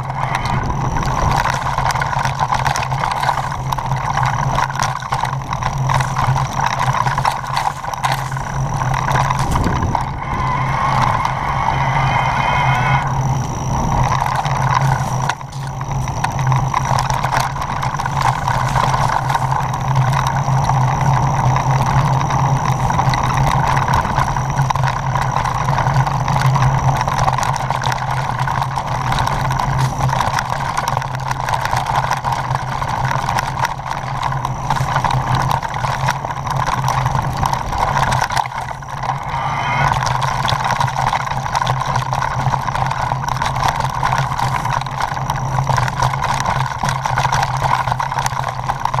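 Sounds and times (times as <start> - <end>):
wind rush: 0.0 - 3.6, 6.1 - 19.3, 38.7 - 40.7
bike tyre and drivetrain noise: 0.0 - 49.0.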